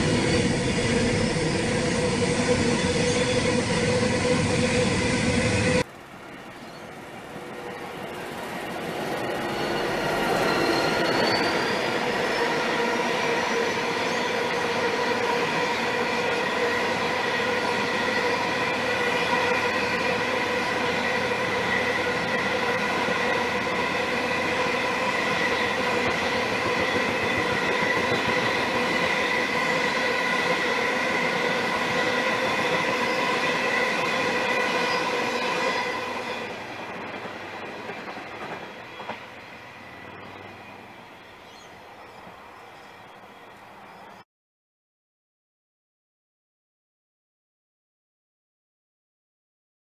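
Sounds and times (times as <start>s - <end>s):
diesel locomotives passing: 0.0s - 44.2s.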